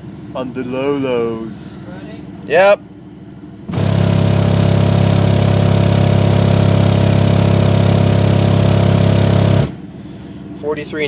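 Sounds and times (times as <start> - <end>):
subwoofer low test tone drone: 3.6 - 9.9.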